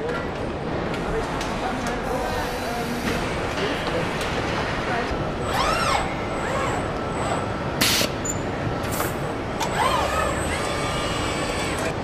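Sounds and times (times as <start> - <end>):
assembly line machinery hum: 0.4 - 12.0
robot motors whining: 5.5 - 7.5, 9.6 - 12.0.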